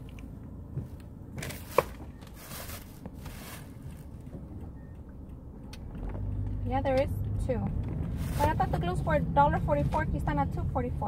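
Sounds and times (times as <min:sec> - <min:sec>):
road rumble inside car: 0:00.0 - 0:11.0
rustling: 0:01.4 - 0:04.1, 0:08.0 - 0:08.8.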